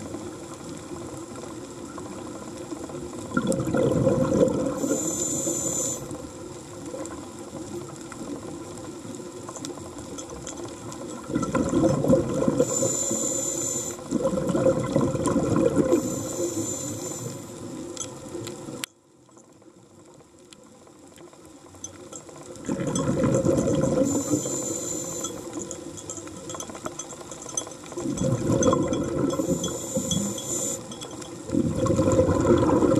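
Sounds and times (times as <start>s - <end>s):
exhaled bubbles underwater: 0.0s - 18.8s, 22.4s - 26.6s, 27.9s - 32.9s
air hiss from regulator: 4.7s - 6.2s, 12.6s - 14.1s, 15.9s - 17.7s, 24.0s - 25.6s, 29.3s - 30.9s.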